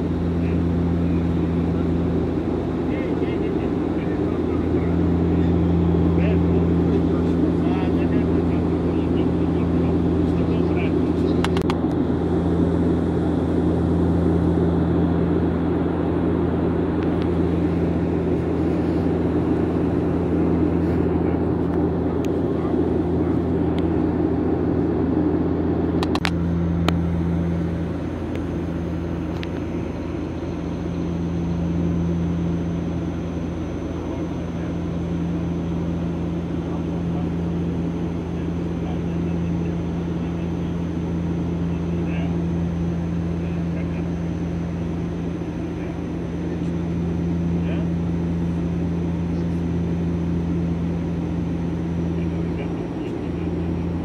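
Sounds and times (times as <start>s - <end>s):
engine and airflow rush: 0.0s - 54.0s
propeller hum: 0.0s - 54.0s.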